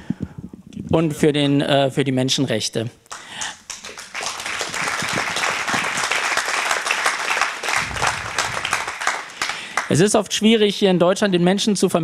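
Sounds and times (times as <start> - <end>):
audience applauding: 3.1 - 10.1.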